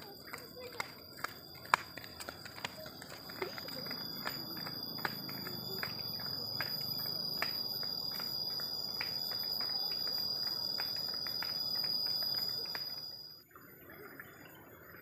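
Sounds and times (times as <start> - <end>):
footsteps on asphalt: 0.0 - 13.2
high-pitched insect trill: 2.8 - 13.5.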